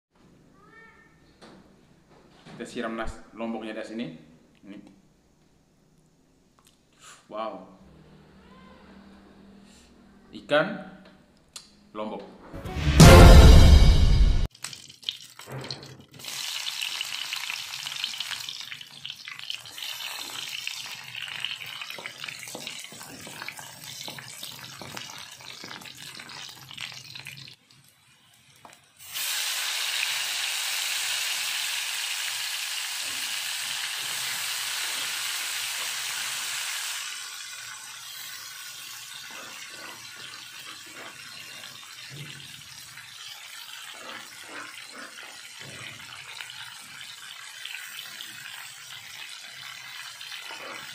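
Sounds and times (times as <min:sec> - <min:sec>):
running water splashing: 0:32.6 - 0:50.9.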